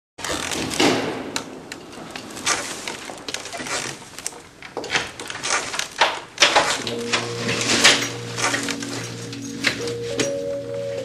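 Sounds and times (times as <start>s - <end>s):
chair creaking and knocking: 0.2s - 11.0s
clothing rustling: 2.0s - 10.6s.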